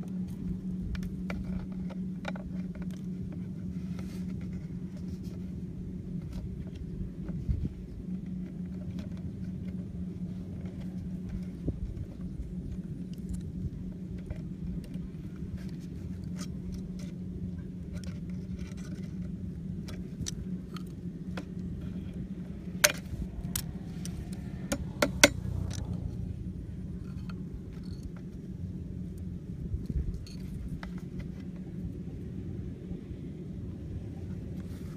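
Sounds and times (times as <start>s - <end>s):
steady low hum: 0.0s - 34.9s
wire and pliers clicking: 22.8s - 26.1s.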